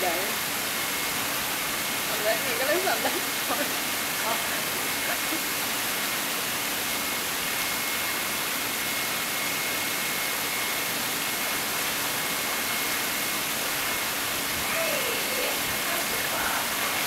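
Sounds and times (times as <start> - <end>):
water rushing: 0.0 - 17.0
faint high whine: 4.2 - 17.0.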